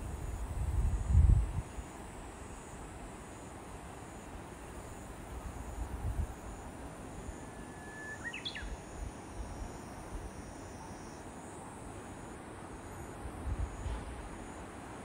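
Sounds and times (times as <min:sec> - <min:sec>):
low outdoor background noise: 0:00.0 - 0:15.0
bird singing: 0:07.5 - 0:08.8.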